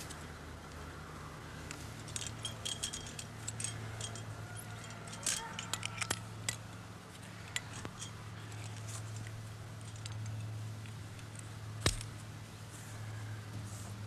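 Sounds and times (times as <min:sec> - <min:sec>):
steady low hum: 0:00.0 - 0:14.0
climbing hardware clicking: 0:01.7 - 0:12.2.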